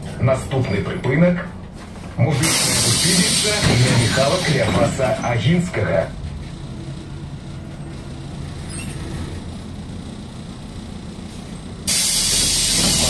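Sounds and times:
bus engine drone: 0:00.0 - 0:13.0.

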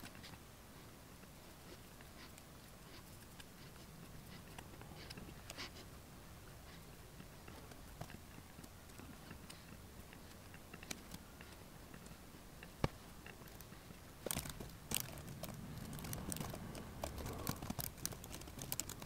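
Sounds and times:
laptop keys and trackpad clicks: 0:07.4 - 0:19.0.

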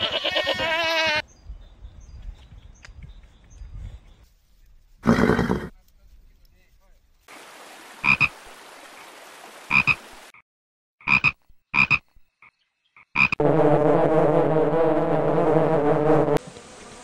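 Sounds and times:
frog croaking: 0:08.0 - 0:08.4, 0:09.7 - 0:10.0, 0:11.0 - 0:13.4
honeybee colony buzzing: 0:13.4 - 0:17.0.

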